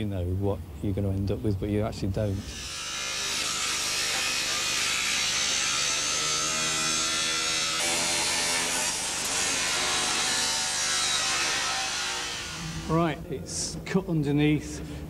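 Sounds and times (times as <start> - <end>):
angle grinder cutting sheet metal: 2.4 - 12.9.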